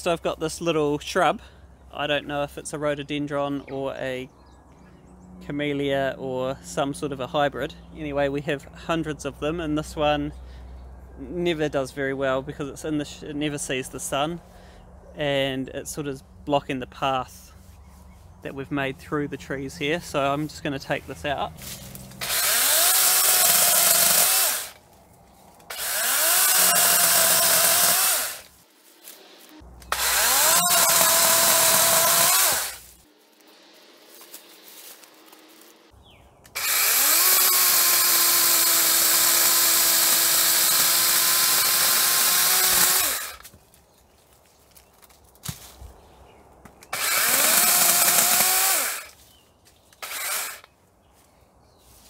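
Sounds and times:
electric chainsaw cutting stems: 21.6s - 24.9s, 25.6s - 35.9s, 36.5s - 43.5s, 46.9s - 49.2s, 50.0s - 50.8s.

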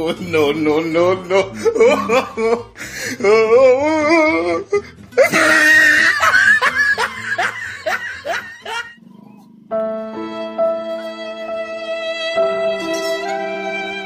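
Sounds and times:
loud laughter: 0.0s - 9.0s
background music: 0.0s - 14.0s.

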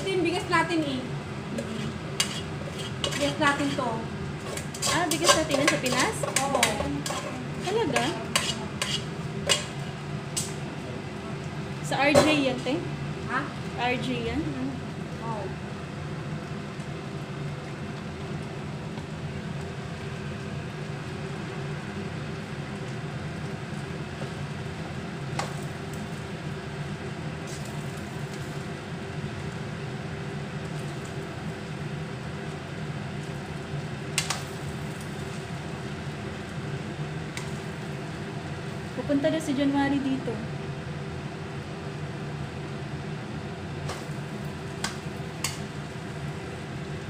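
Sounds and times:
steady hum: 0.0s - 47.0s
metal spatula stirring in a wok: 1.5s - 9.8s
spatula clacking against pan: 1.6s - 3.4s, 4.4s - 9.8s.

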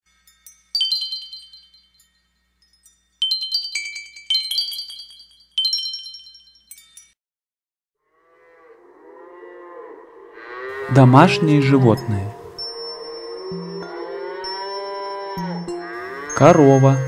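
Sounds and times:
bright chime jingle: 0.0s - 7.2s, 12.0s - 17.0s
animal call: 8.2s - 17.0s.

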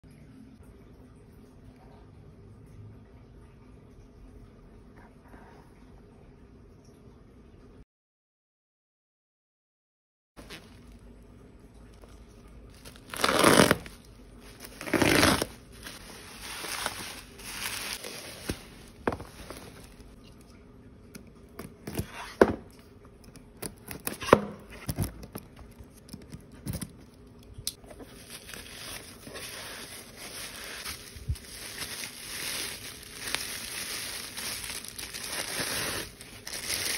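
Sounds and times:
bubble wrap crinkling: 10.4s - 11.0s, 12.7s - 20.2s, 27.7s - 36.9s
parcel tearing rips: 12.8s - 18.6s, 27.8s - 36.9s.

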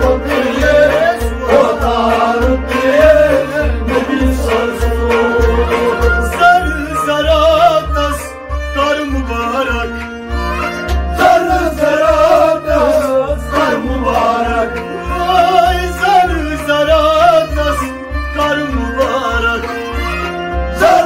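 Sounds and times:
man singing ornamented melody: 0.0s - 10.0s, 11.2s - 21.0s
clay pot drum beat: 0.0s - 21.0s
held accompanying tones: 0.0s - 21.0s.

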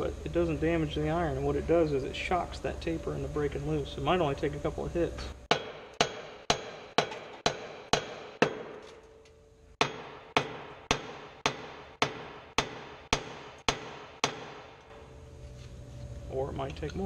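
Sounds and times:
hammer striking metal: 5.5s - 15.1s.

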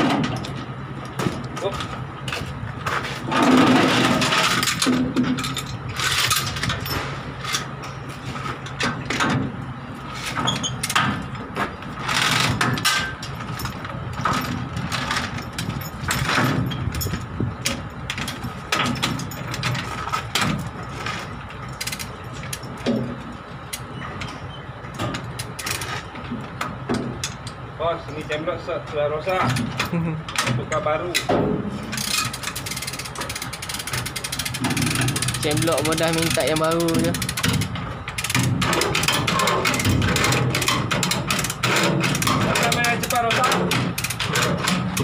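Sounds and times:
engine hum: 0.0s - 45.0s
chain rattling: 3.4s - 7.7s, 12.0s - 20.2s
ratchet clicking: 31.9s - 45.0s.

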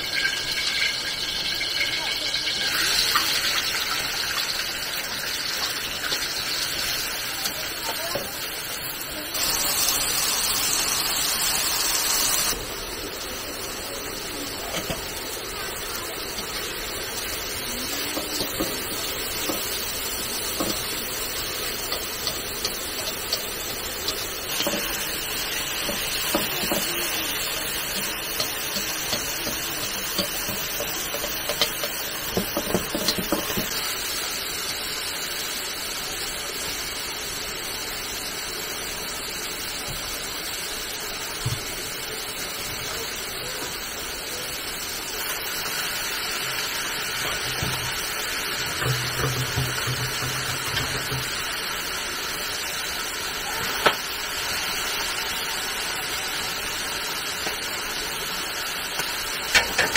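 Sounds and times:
water hissing: 8.7s - 36.2s.

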